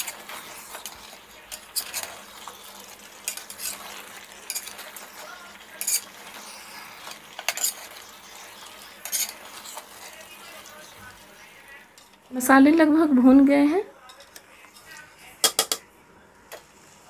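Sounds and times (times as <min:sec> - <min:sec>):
spoon scraping metal pot: 0:00.0 - 0:11.0
faint frying sizzle: 0:00.0 - 0:15.3.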